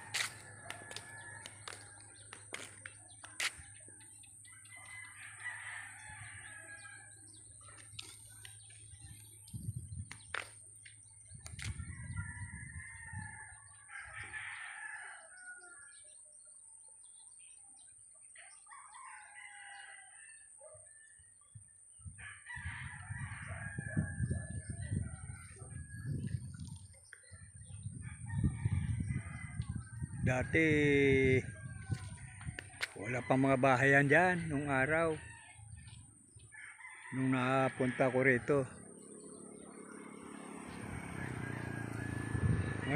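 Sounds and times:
roosters crowing: 0:00.0 - 0:09.2, 0:11.6 - 0:16.1, 0:18.4 - 0:21.1, 0:22.0 - 0:42.9
wind rumbling on microphone: 0:08.5 - 0:14.4, 0:21.5 - 0:36.6, 0:38.7 - 0:42.9.

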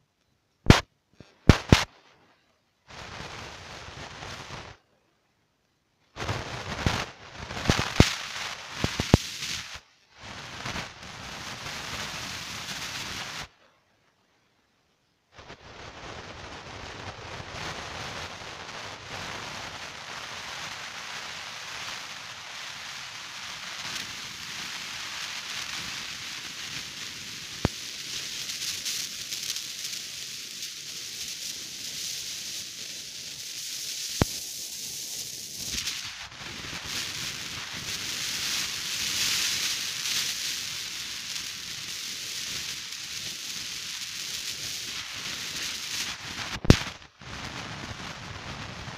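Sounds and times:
sharp clicks: 0:01.4 - 0:01.9.

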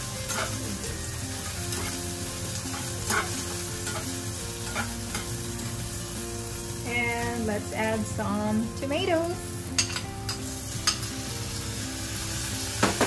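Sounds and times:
spatula scraping pan: 0:00.0 - 0:05.3
onions sizzling in oil: 0:00.0 - 0:13.0.

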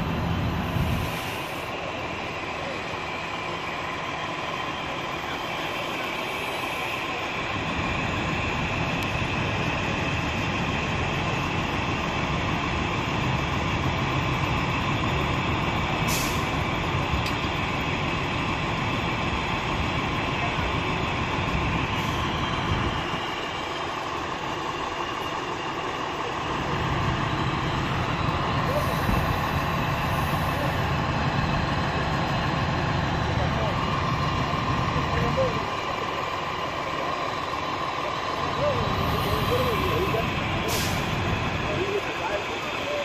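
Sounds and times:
fire truck engines droning: 0:00.0 - 0:43.0.

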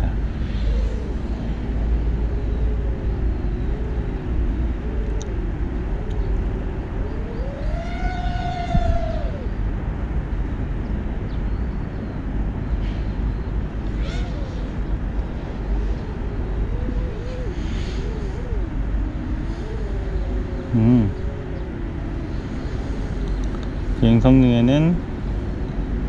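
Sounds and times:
heavy low rumble: 0:00.0 - 0:26.0
quadcopter motors humming: 0:00.0 - 0:26.0.

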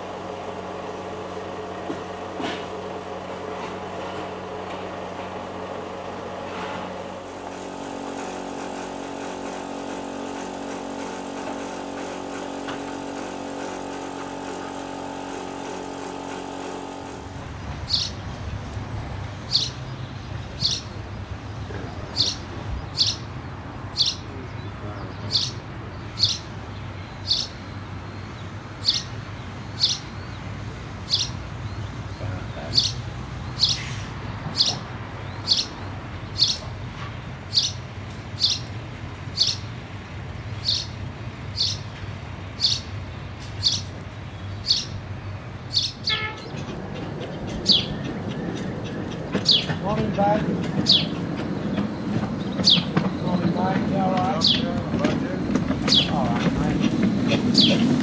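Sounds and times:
steady hum with held tones: 0:00.0 - 0:18.8
steam locomotive rumble: 0:00.0 - 0:25.9, 0:35.8 - 0:58.0
sharp bird chirps: 0:17.9 - 0:18.2, 0:19.5 - 0:19.8, 0:22.2 - 0:23.3, 0:24.0 - 0:24.2, 0:27.2 - 0:27.7, 0:28.8 - 0:30.4, 0:31.1 - 0:31.4, 0:32.7 - 0:34.8, 0:35.4 - 0:36.7, 0:37.5 - 0:37.8, 0:38.4 - 0:38.7, 0:39.4 - 0:39.7, 0:40.6 - 0:41.0, 0:41.6 - 0:41.9, 0:42.6 - 0:42.9, 0:43.6 - 0:45.0, 0:45.7 - 0:46.6.

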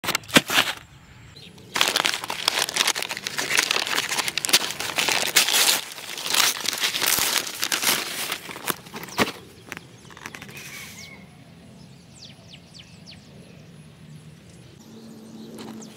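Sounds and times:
paper bag crinkling and tearing: 0:00.0 - 0:00.8, 0:01.6 - 0:10.7.

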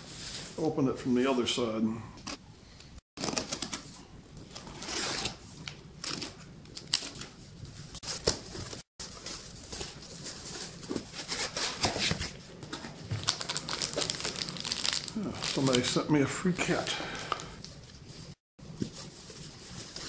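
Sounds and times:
cardboard and tape rustling: 0:03.2 - 0:16.0, 0:17.6 - 0:20.0.

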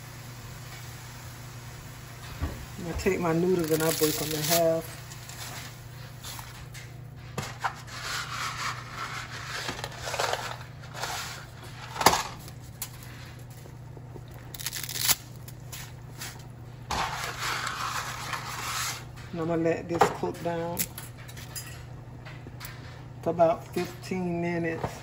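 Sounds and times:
dry spaghetti snapping: 0:14.3 - 0:16.5.

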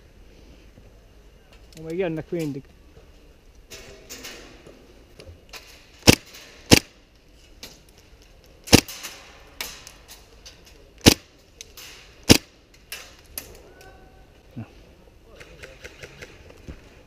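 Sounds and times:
airsoft gun shots: 0:06.0 - 0:07.0, 0:08.7 - 0:09.8, 0:11.0 - 0:11.3, 0:12.2 - 0:12.5.

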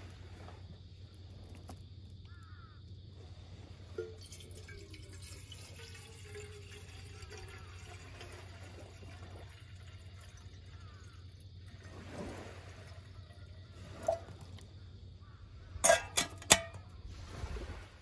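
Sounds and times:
water pouring into metal kettle: 0:04.0 - 0:14.5, 0:15.8 - 0:16.8.

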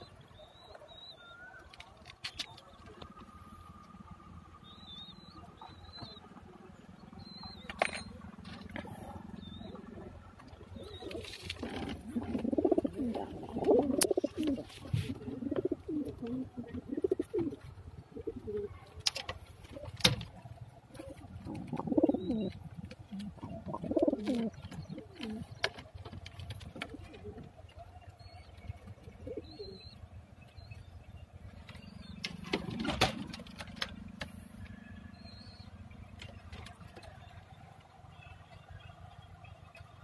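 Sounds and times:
pigeons cooing: 0:07.4 - 0:30.0, 0:31.6 - 0:35.6.

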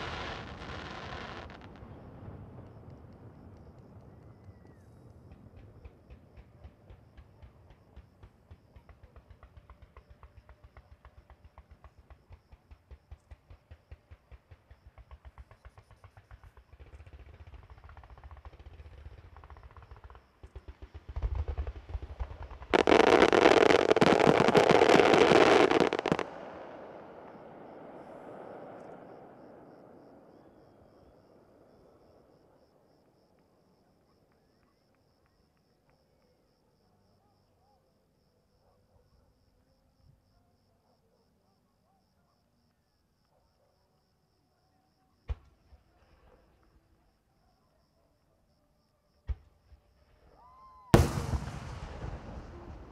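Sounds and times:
barrage of fireworks explosions: 0:00.0 - 0:32.6, 0:49.2 - 0:52.9
firecracker bangs: 0:51.0 - 0:52.9.

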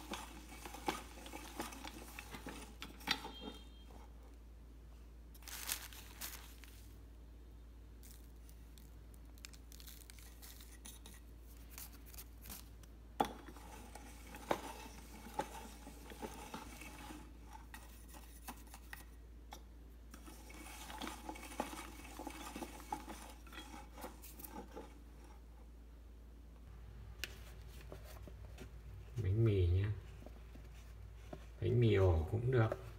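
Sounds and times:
grinder crunching pellets: 0:05.4 - 0:06.8
plastic bag crinkling: 0:05.4 - 0:07.0, 0:08.0 - 0:10.9.

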